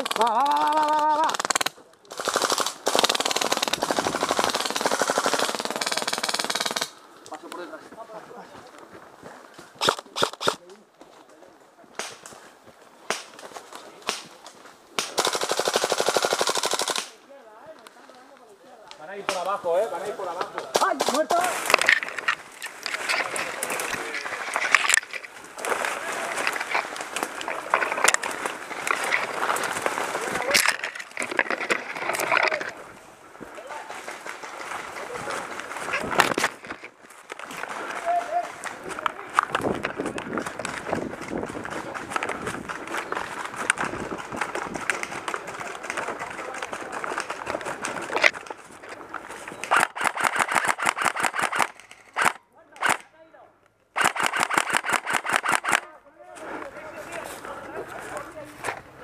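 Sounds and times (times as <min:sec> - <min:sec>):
rapid airsoft rifle shots: 0:00.0 - 0:07.0, 0:09.8 - 0:10.6, 0:15.0 - 0:17.2, 0:49.6 - 0:53.1, 0:54.0 - 0:55.9
sharp crack: 0:00.0 - 0:07.4, 0:09.8 - 0:10.8, 0:11.9 - 0:12.4, 0:13.0 - 0:17.2, 0:49.6 - 0:53.1, 0:54.0 - 0:56.0
footsteps in undergrowth: 0:07.0 - 0:15.0, 0:17.6 - 0:49.8, 0:56.2 - 0:59.0
twigs snapping: 0:11.9 - 0:12.4, 0:13.0 - 0:15.2, 0:20.4 - 0:32.8
leaves and branches brushing: 0:17.6 - 0:49.8.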